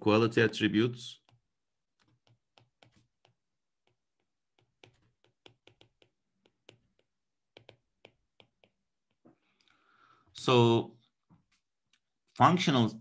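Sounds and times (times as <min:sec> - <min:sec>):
stylus tapping on a tablet: 0:01.2 - 0:09.4.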